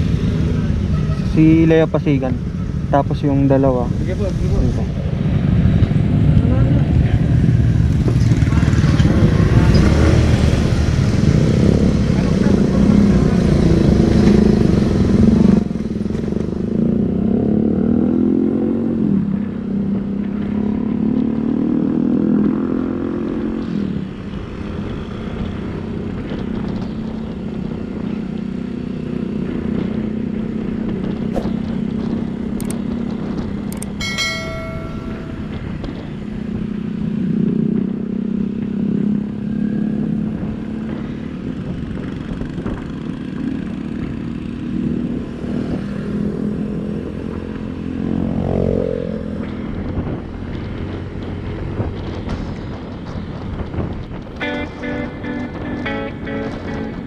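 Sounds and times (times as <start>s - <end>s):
motorcycle engine running: 49.4s - 57.0s
loud rushing noise: 51.6s - 57.0s.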